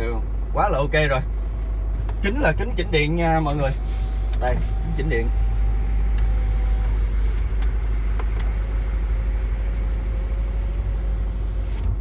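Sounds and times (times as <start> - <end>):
truck engine idling: 0.0 - 12.0
power window motor whine: 3.6 - 12.0.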